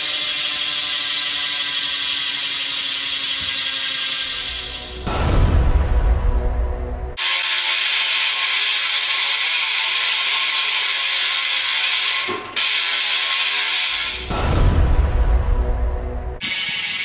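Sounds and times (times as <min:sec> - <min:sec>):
bike hub ratcheting buzz: 0:00.0 - 0:04.9, 0:07.2 - 0:14.3, 0:16.4 - 0:17.0.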